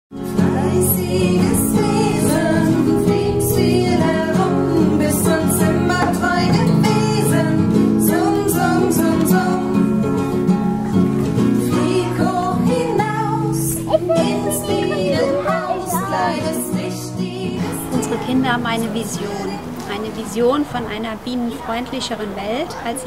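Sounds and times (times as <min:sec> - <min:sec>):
guitar accompaniment: 0:00.1 - 0:20.1
person singing: 0:11.8 - 0:18.0.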